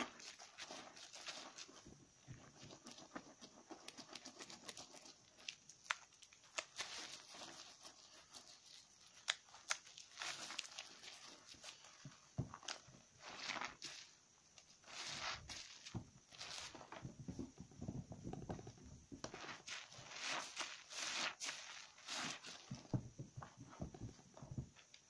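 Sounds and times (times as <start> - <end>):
lather crackling pops: 3.8 - 25.0
wet squelching of soapy lather: 19.3 - 23.0.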